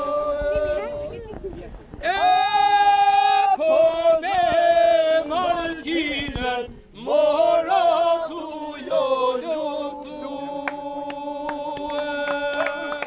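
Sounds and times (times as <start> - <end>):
men singing unaccompanied: 0.0 - 1.2, 2.0 - 13.0
sharp claps: 10.6 - 13.0.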